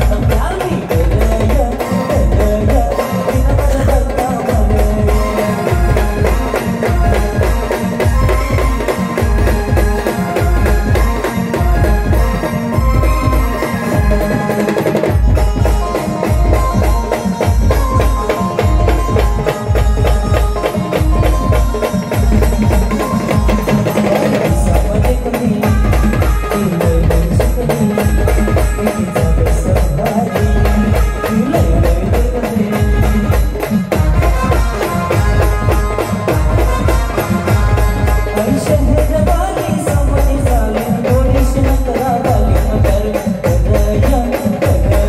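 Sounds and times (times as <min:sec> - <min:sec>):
brass band playing: 0:30.4 - 0:38.8.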